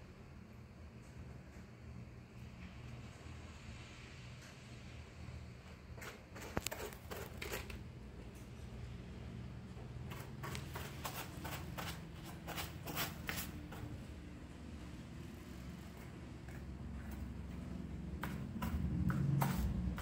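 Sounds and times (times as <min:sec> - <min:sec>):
cat scratching in litter: 0:05.8 - 0:08.0, 0:10.0 - 0:14.0, 0:17.0 - 0:20.0.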